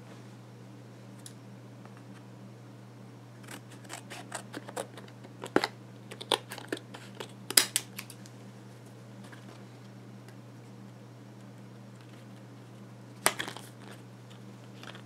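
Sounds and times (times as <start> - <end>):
scissors snipping plastic packaging: 3.4 - 8.2.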